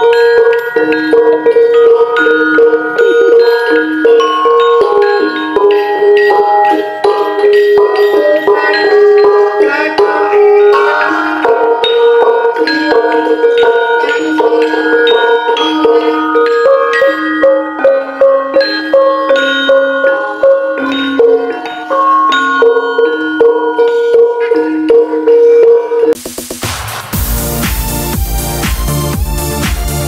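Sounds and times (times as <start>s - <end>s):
gamelan mallets striking bars: 0.0s - 30.0s.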